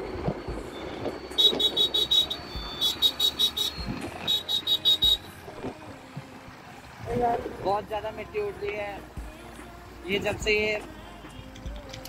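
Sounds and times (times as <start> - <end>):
high-pitched electronic beeping: 0.0 - 5.5
wind noise: 0.0 - 6.3
motorcycle hum: 0.0 - 12.0.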